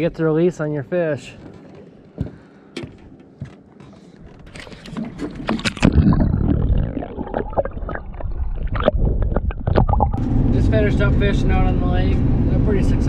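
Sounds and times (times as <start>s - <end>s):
underwater sloshing and bubbling: 4.3s - 10.3s
water splashing: 4.5s - 10.2s.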